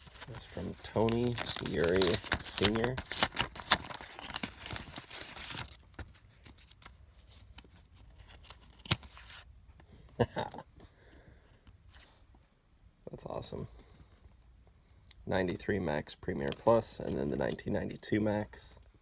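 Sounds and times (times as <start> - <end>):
paper envelope tearing: 0.0 - 7.3, 8.1 - 9.4.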